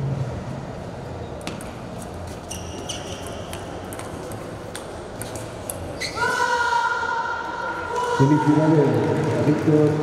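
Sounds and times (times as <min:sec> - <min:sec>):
ping pong ball clicking: 0:03.2 - 0:05.8.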